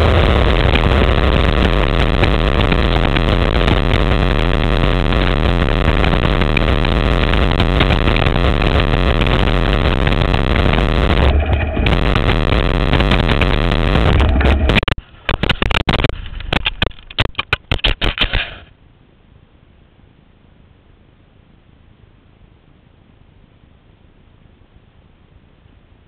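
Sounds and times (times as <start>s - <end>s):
wind rushing over microphone: 0.0s - 16.9s
wheels rolling fast over ground: 0.0s - 18.7s
crash with knocks and scrapes: 11.2s - 18.7s.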